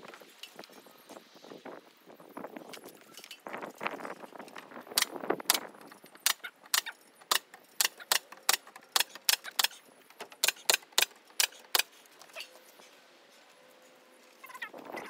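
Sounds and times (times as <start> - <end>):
sharp clicks: 5.0 - 11.9.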